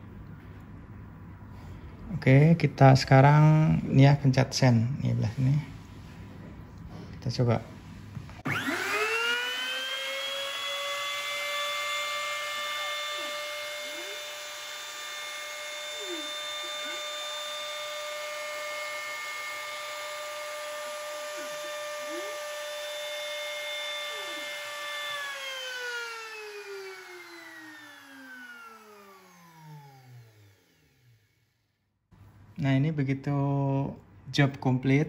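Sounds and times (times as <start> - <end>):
router high whine: 8.4 - 31.8
stepper motor whines: 8.4 - 31.8.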